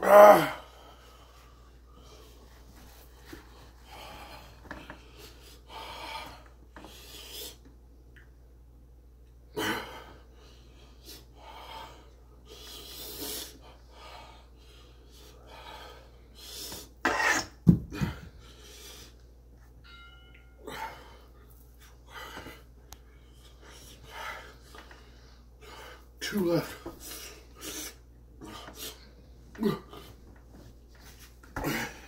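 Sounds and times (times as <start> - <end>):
man breathing hard: 3.3 - 7.7, 9.6 - 17.0, 17.8 - 19.2, 20.6 - 26.2.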